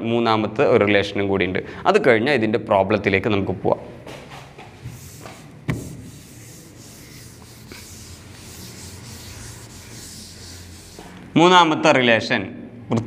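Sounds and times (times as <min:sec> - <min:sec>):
hand rubbing across display board: 0:04.7 - 0:11.4.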